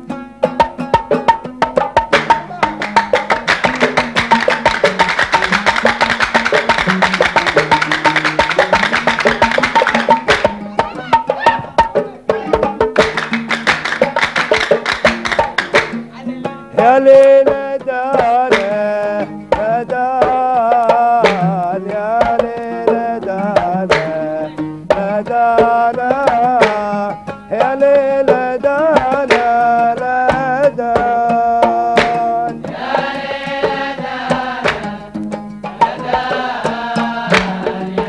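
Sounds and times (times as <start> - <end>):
hand drum strokes: 0.0 - 38.0
oud: 0.0 - 38.0
man singing ornamented melody: 16.4 - 32.7.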